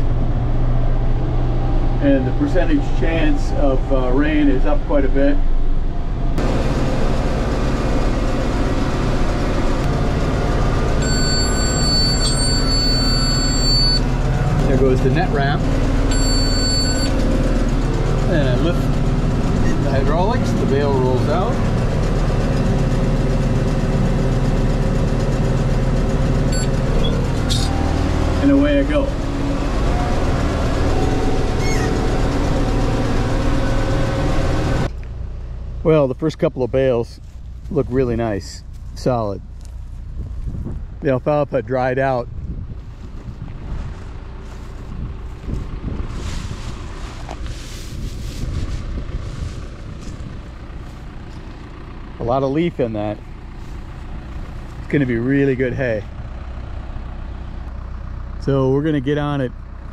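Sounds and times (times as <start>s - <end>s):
tractor engine running: 0.0s - 59.9s
round baler running: 6.4s - 35.1s, 42.8s - 59.9s
high-pitched monitor beep: 11.0s - 14.1s, 16.1s - 17.2s, 26.5s - 27.2s.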